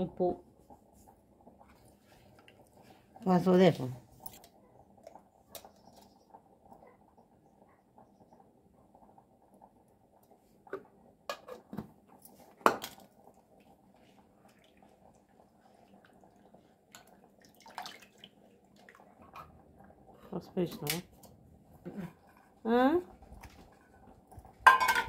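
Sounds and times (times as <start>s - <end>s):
bowls clinking and knocking: 24.6s - 25.0s.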